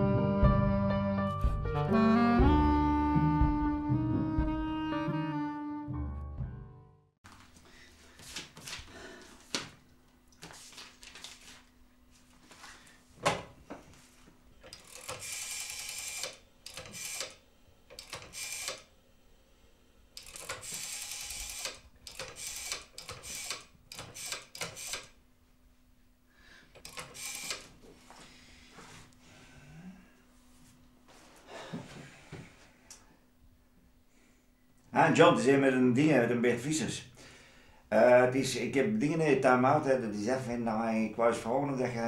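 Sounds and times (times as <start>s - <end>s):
rotary phone dial whirring: 14.6s - 18.9s, 20.2s - 25.2s, 26.8s - 27.7s.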